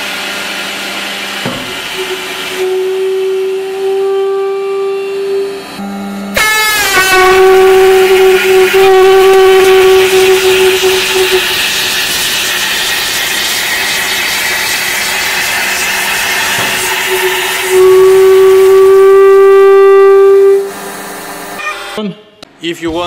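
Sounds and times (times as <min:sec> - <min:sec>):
air horn blaring: 0:02.0 - 0:11.6, 0:16.8 - 0:22.4
gas hissing from crushed can: 0:10.0 - 0:17.9.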